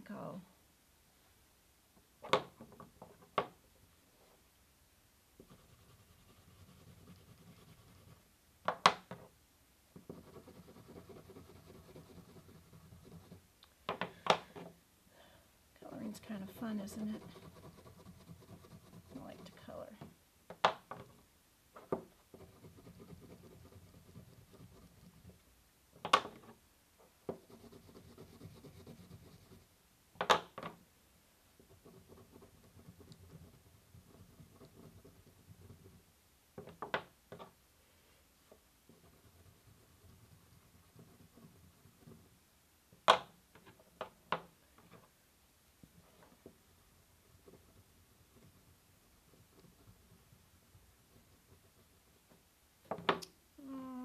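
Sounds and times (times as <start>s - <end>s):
crayon scratching on paper: 5.4s - 8.3s, 10.0s - 13.5s, 16.0s - 19.9s, 22.2s - 25.4s, 27.4s - 29.7s, 31.6s - 36.0s, 38.9s - 42.4s, 46.7s - 52.2s.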